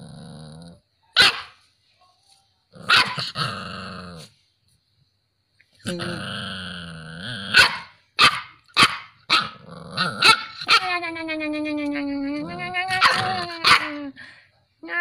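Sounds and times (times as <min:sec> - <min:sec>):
puppy growling: 0:00.0 - 0:00.9, 0:02.7 - 0:04.4, 0:05.8 - 0:07.8, 0:09.4 - 0:14.0
puppy barking: 0:01.2 - 0:01.6, 0:02.8 - 0:03.4, 0:07.5 - 0:09.6, 0:10.2 - 0:10.9, 0:13.0 - 0:14.0.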